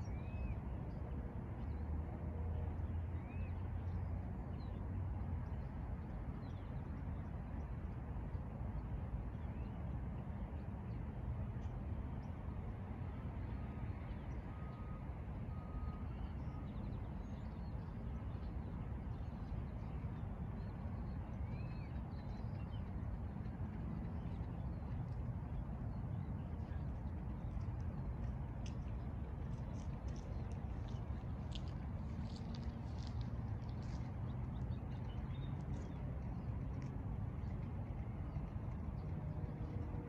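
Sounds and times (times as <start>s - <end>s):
low background rumble: 0.0s - 40.0s.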